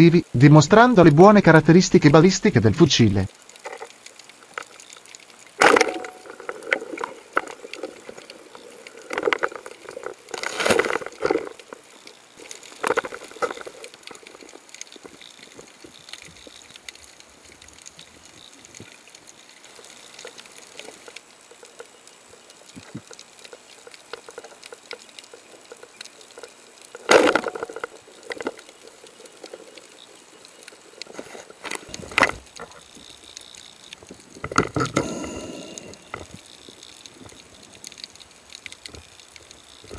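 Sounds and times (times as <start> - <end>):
muffled underwater noise: 34.0 - 36.5.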